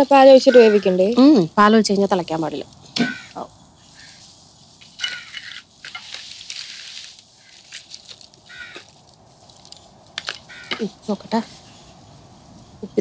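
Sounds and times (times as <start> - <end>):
light sizzle: 0.0 - 13.0
shells scraping against spatula and pan: 4.8 - 11.8.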